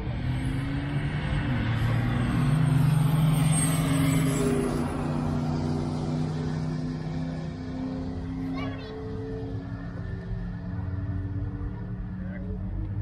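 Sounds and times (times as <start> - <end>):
diesel truck engine running hard: 0.0 - 13.0.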